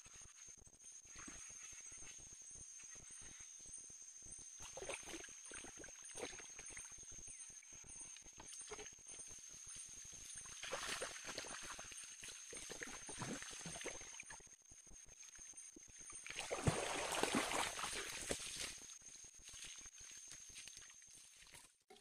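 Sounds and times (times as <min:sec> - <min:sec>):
water sloshing around wading legs: 0:10.3 - 0:14.4, 0:16.2 - 0:22.0.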